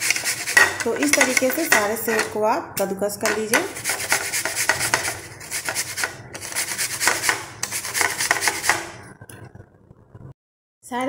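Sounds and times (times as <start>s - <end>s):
apple rasping on a grater: 0.0s - 2.3s, 3.3s - 9.0s.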